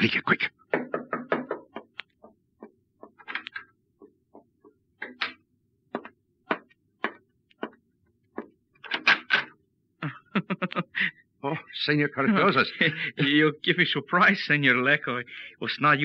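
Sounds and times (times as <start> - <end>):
footsteps tapping: 0.7 - 3.2
flurry of knocks: 0.7 - 9.6.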